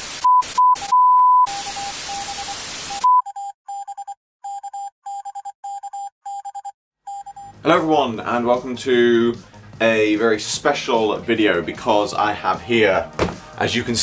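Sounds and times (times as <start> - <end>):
static hiss: 0.0 - 0.9
test-tone beeps: 0.2 - 7.6.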